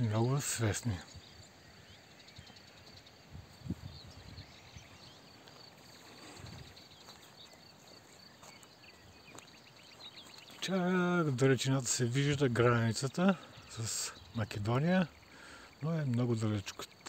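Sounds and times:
distant birds chirping: 0.0 - 17.0
wind bumps on microphone: 3.3 - 4.9
small ticking calls: 4.0 - 17.0.

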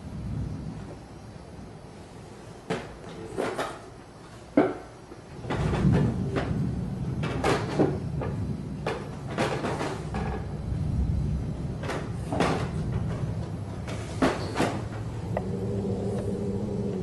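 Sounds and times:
knocks and creaks: 4.6 - 10.6, 11.8 - 17.0
low rumble: 14.7 - 17.0.

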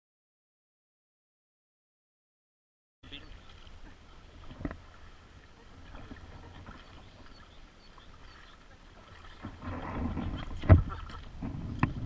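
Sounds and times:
paddle strokes in water: 3.0 - 12.0.

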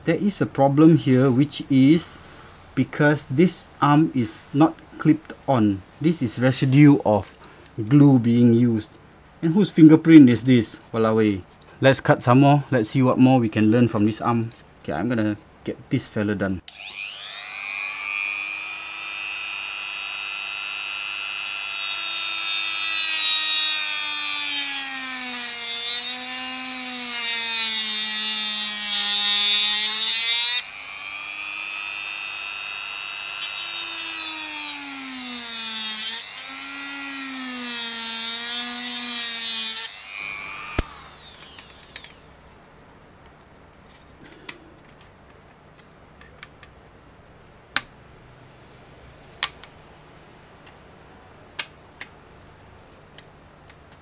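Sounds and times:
rotary tool cutting plastic: 16.7 - 42.2
sharp clicks of pliers: 40.7 - 41.0.

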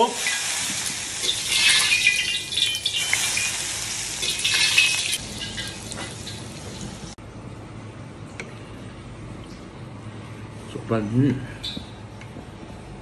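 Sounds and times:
hot oil sizzling and crackling: 0.0 - 7.2.

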